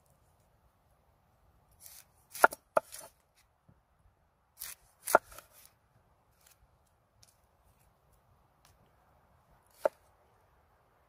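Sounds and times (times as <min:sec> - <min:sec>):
knife slicing onion: 0:01.8 - 0:03.2, 0:04.6 - 0:05.7, 0:09.7 - 0:10.1.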